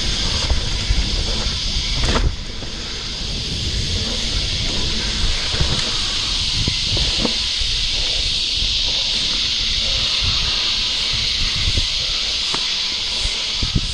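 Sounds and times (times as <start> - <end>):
bike rattling over bumps: 0.0 - 13.9
bike tyres hissing on dirt trail: 0.0 - 13.9.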